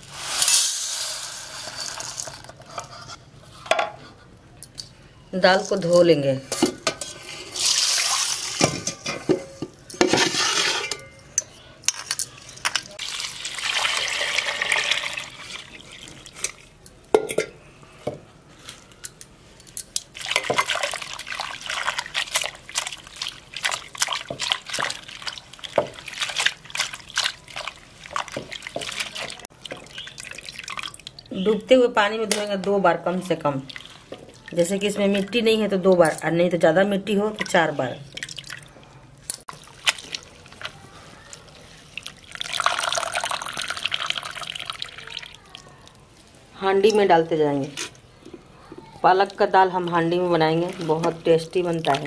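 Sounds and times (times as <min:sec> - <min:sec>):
water splashing in metal bowls: 0:12.8 - 0:16.8, 0:19.9 - 0:46.0, 0:49.0 - 0:52.0
water dripping: 0:20.0 - 0:32.7, 0:37.3 - 0:40.7, 0:51.0 - 0:52.0.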